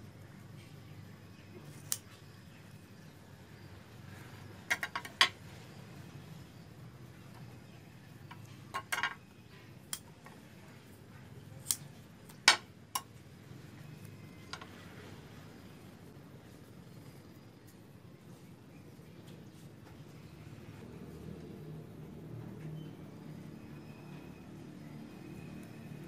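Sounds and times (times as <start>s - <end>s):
clicks and taps of tools on table: 4.7s - 5.3s.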